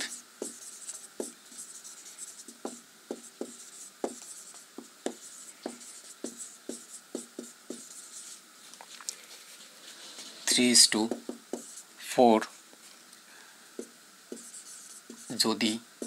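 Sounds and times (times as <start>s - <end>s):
marker scratching on a whiteboard: 0.0s - 8.4s, 9.4s - 11.9s, 13.8s - 15.8s
marker taps: 0.4s - 1.6s, 2.4s - 8.0s, 11.0s - 11.8s, 13.8s - 15.4s.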